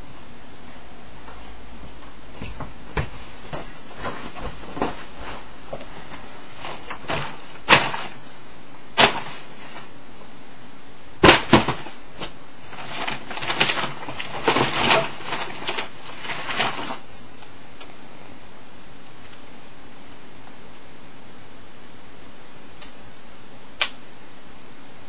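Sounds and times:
paper rustling: 2.4s - 8.2s, 11.2s - 17.1s.

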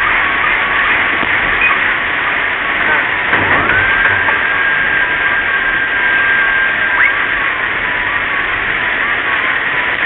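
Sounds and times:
heavy rain on car windscreen: 0.0s - 10.0s
thin high steady tone: 2.9s - 9.0s.

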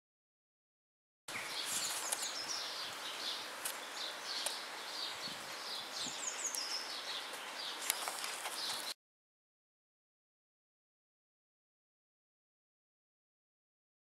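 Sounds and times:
small birds chirping: 1.3s - 9.0s
steady outdoor hiss: 1.3s - 9.0s.

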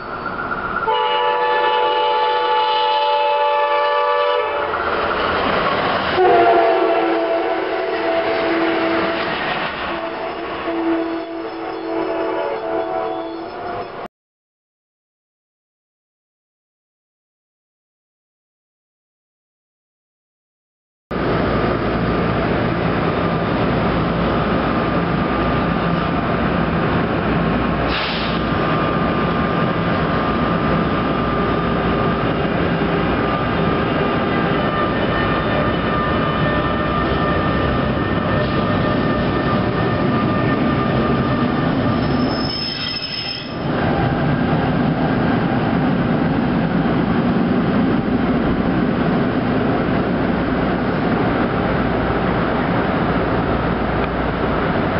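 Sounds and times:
train wheels rumbling on rails: 4.5s - 12.2s, 21.2s - 54.9s.

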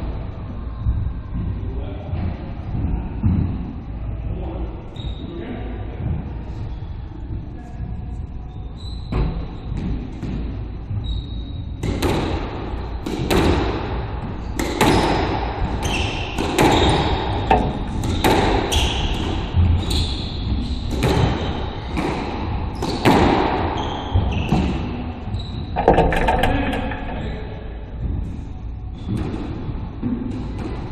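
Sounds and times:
squash ball hits echoing: 11.8s - 25.0s, 25.7s - 27.4s.

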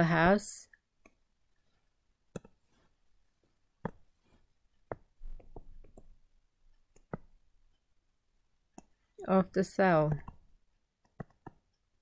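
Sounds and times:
pen tapping on drawing tablet: 2.3s - 2.6s, 4.8s - 6.1s, 6.9s - 7.3s, 10.1s - 11.6s.

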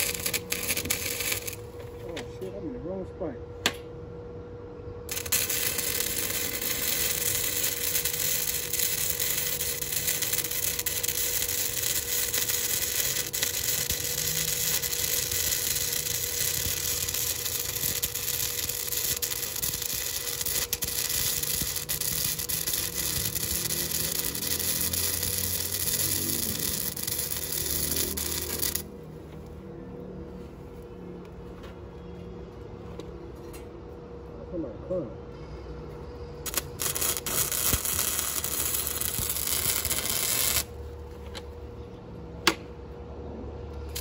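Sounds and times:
arc welder crackling hiss: 0.0s - 2.0s, 5.1s - 28.9s, 36.4s - 40.9s.

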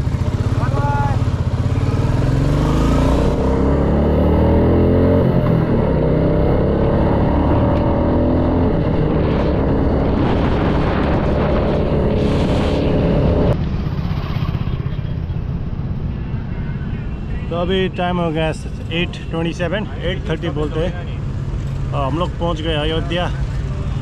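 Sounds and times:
motorcycle engine accelerating: 0.0s - 15.7s
outdoor background: 0.0s - 24.0s.

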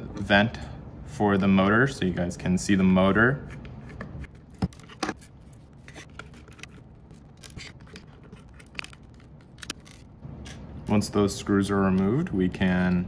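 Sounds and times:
screwdriver clicking and scraping: 3.5s - 10.6s.

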